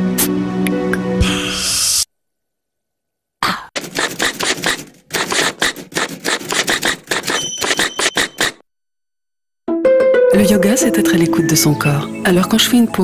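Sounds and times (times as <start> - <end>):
music cue: 9.7 - 13.0.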